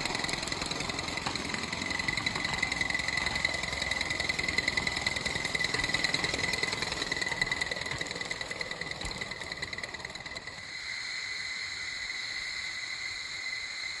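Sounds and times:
wheel clatter: 0:00.0 - 0:10.8
steam locomotive exhaust beats: 0:00.0 - 0:13.9
high-pitched steam hiss: 0:10.6 - 0:14.0.

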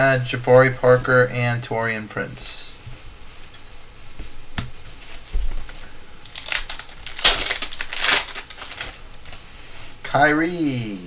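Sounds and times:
foil wrapper tearing and crinkling: 0:05.7 - 0:09.4.

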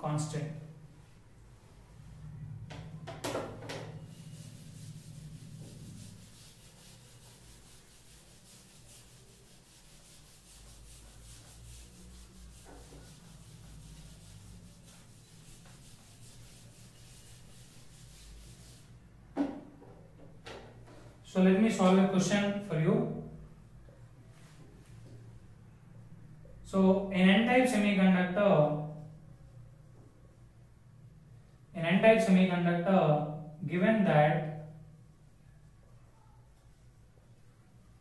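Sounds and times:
duster scrubbing whiteboard: 0:03.5 - 0:19.0.

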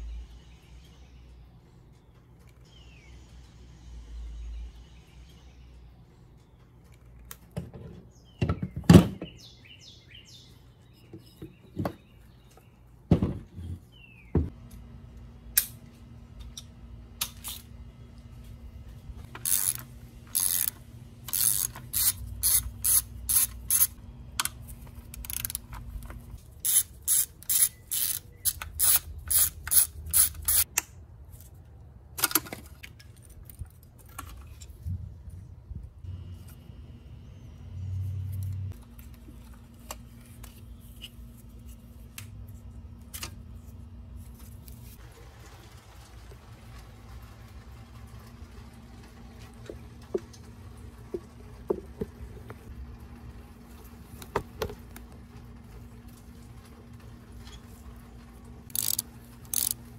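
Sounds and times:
socket ratchet clicking: 0:19.4 - 0:24.6, 0:26.6 - 0:30.8, 0:58.7 - 0:59.8.

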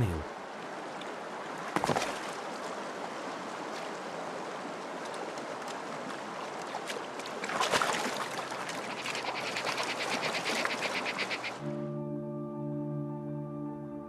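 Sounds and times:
fast rhythmic pulsing: 0:08.9 - 0:11.6.

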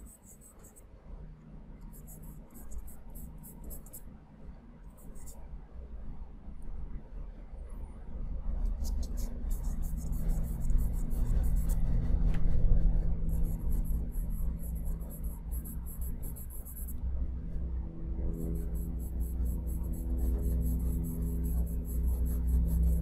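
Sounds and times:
charcoal pencil scratching on paper: 0:00.0 - 0:00.8, 0:01.9 - 0:04.0, 0:08.7 - 0:17.0, 0:18.4 - 0:23.0.

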